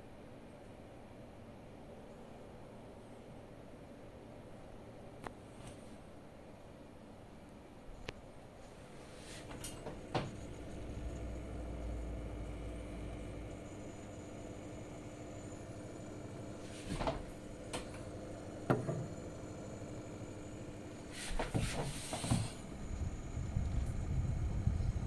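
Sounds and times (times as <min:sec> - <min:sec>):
computer hum: 0:08.7 - 0:21.5, 0:22.4 - 0:25.0.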